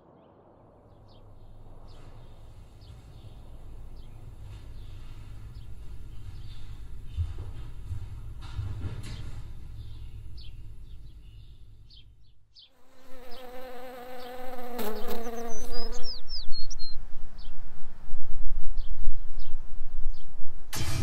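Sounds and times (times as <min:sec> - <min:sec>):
flying insect buzzing: 0:12.7 - 0:16.2.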